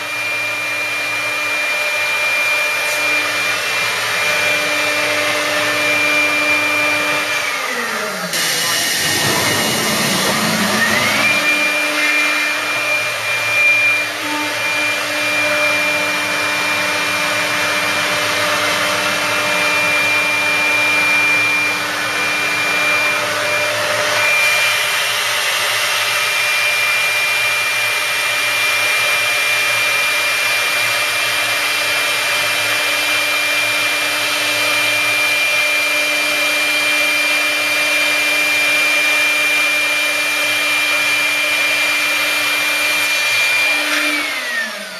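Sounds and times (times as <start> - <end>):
router spindle whine: 0.0 - 44.9
dust extraction rush: 2.2 - 16.0.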